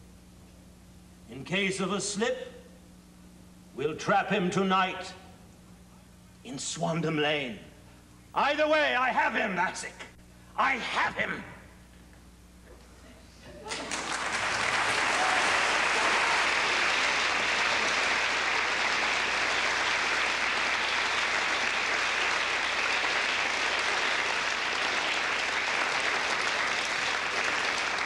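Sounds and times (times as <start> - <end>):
audience applauding: 13.7 - 28.0.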